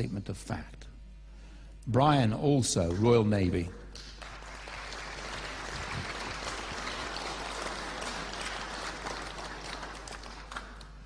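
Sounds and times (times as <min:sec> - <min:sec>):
audience applauding: 0:02.9 - 0:11.0.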